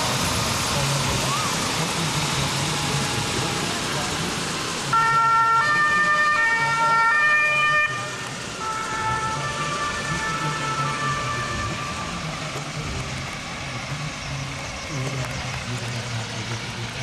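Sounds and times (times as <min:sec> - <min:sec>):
two-tone siren: 0:04.9 - 0:12.2.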